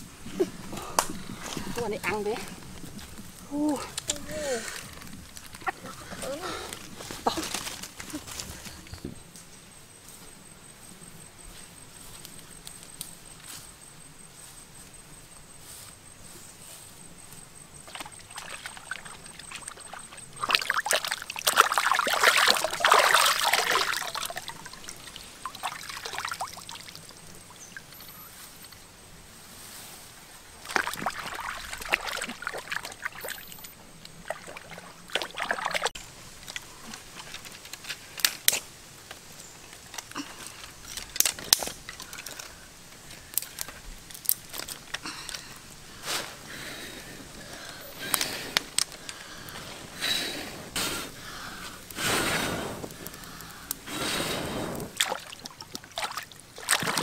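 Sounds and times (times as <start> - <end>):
water pouring and sloshing: 17.8 - 28.1, 30.6 - 37.7, 54.8 - 57.0.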